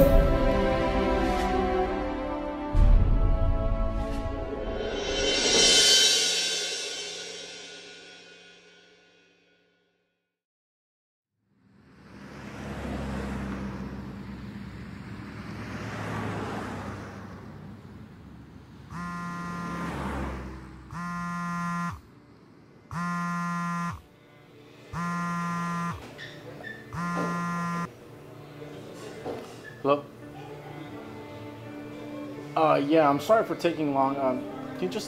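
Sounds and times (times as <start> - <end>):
smartphone buzzing: 18.9 - 20.1, 20.9 - 22.1, 22.9 - 24.1, 24.9 - 26.2, 26.9 - 27.9.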